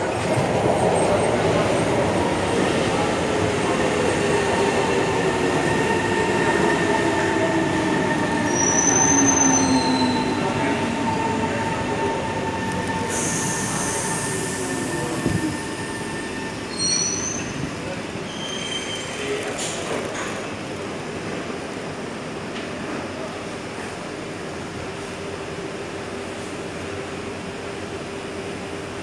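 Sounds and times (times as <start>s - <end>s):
high-pitched brake squeals: 8.4s - 10.5s, 13.0s - 17.6s, 18.3s - 19.4s.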